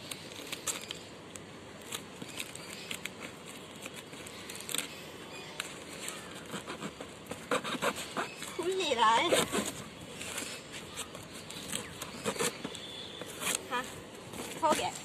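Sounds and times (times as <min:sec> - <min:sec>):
cardboard crackling: 0:00.0 - 0:15.0
knife cutting packing tape: 0:09.2 - 0:13.7.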